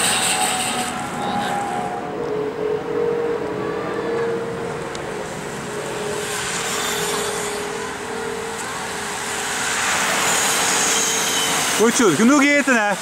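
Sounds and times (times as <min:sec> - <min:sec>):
bicycle tyres hissing on road: 0:00.0 - 0:01.4, 0:05.5 - 0:13.0
vehicle engine hum: 0:00.0 - 0:13.0.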